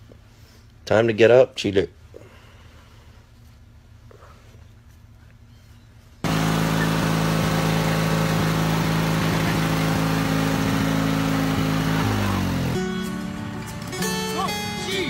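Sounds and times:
motor running: 6.2s - 12.9s.

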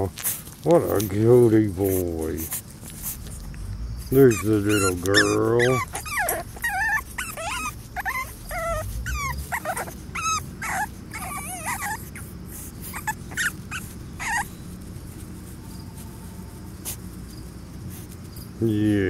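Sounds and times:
puppies whimpering: 0.8s - 16.0s.

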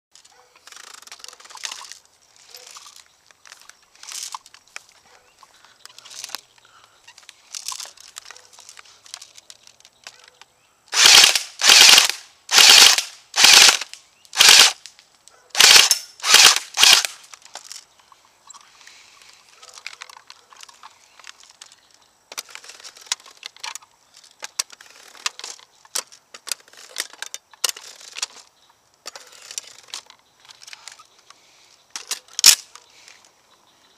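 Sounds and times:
clicks and handling rustle: 0.1s - 10.6s, 13.4s - 33.4s
airsoft gun full-auto bursts: 10.9s - 14.8s, 15.6s - 17.2s.

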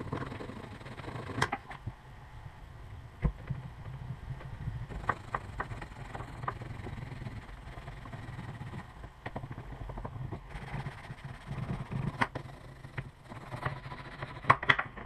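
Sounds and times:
low steady hum: 0.0s - 15.0s
sharp clicks: 4.9s - 9.4s
tool scraping against leather: 10.3s - 14.6s.

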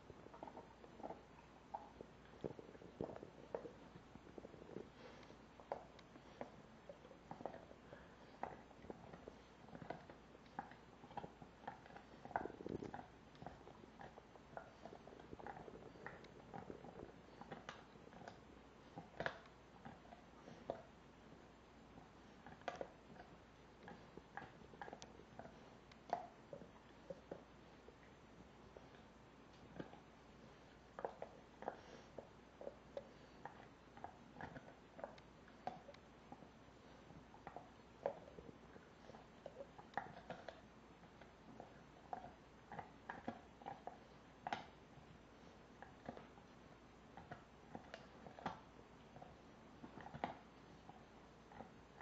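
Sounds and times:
dog teeth cracking on bone: 33.0s - 36.4s, 39.0s - 44.8s, 47.2s - 50.5s.

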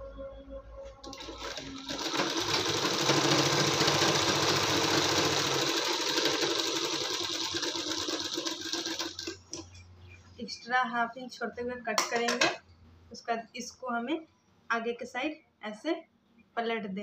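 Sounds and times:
sewing machine stitching: 1.0s - 9.6s.

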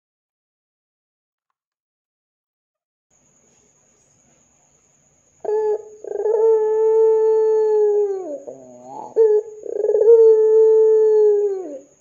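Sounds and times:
dove cooing: 5.4s - 12.0s.

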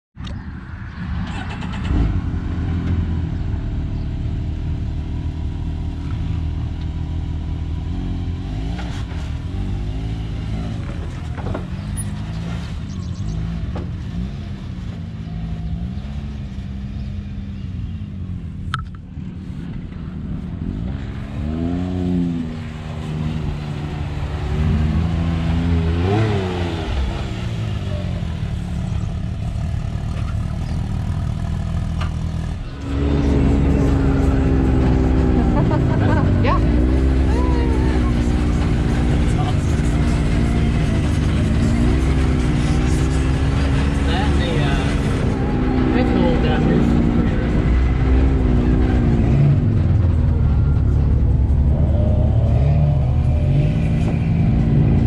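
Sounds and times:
engine throttle blips: 17.0s - 55.0s.

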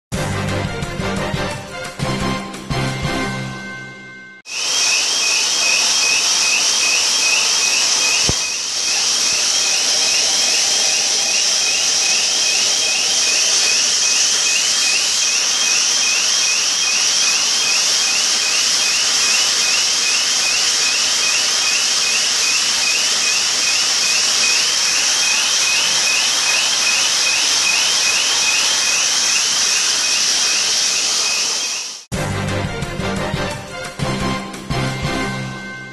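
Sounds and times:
heavy rain and pouring water: 4.5s - 32.1s.

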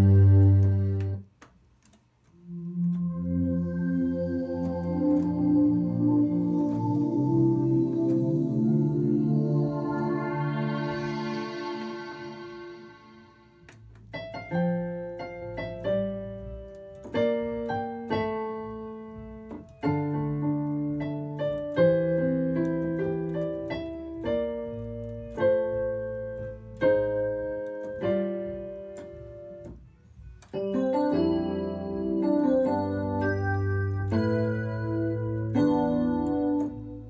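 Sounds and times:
sustained synthesizer chords: 0.0s - 1.2s, 2.4s - 14.2s.

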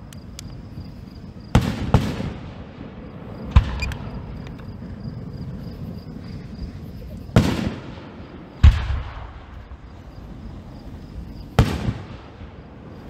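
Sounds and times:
fireworks shells booming: 1.4s - 4.8s, 7.3s - 13.0s.

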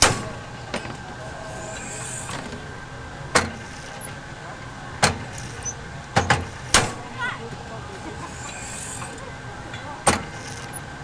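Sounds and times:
loud sharp bangs of press plates: 0.0s - 1.0s, 6.1s - 7.0s
steady machine hum: 0.0s - 11.0s.

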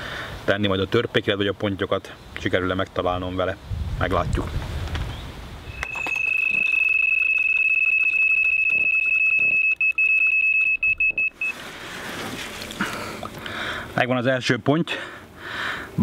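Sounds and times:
bite alarm beeping: 5.7s - 11.6s.

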